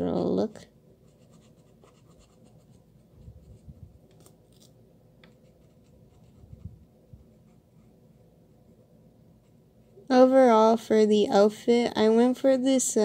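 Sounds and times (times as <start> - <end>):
marker scratching on paper: 1.0 - 3.8, 5.3 - 8.0.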